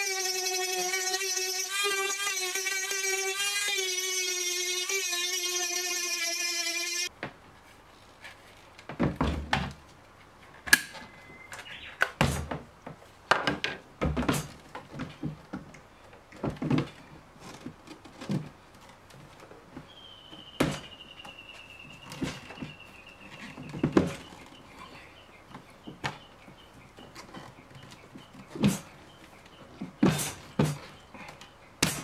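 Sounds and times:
thin high falling tone: 0.0s - 7.1s.

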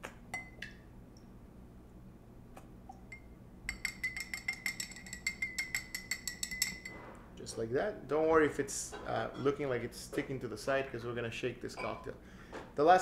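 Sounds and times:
metal jigger clinking against glass: 3.1s - 7.7s.

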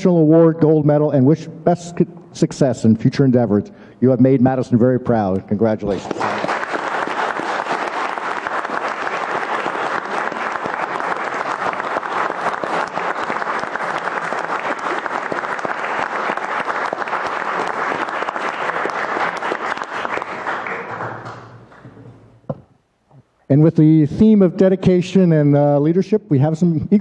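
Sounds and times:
audience applauding: 5.9s - 22.2s.

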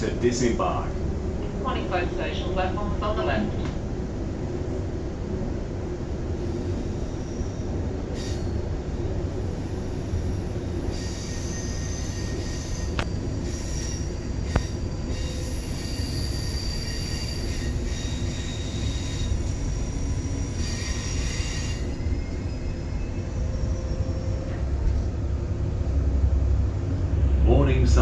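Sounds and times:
train rumble: 0.0s - 28.0s
wheels and brakes squealing: 6.5s - 8.6s, 9.9s - 25.2s.

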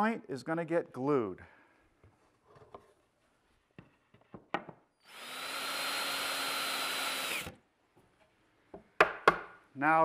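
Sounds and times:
power drill driving a screw: 5.0s - 7.6s.

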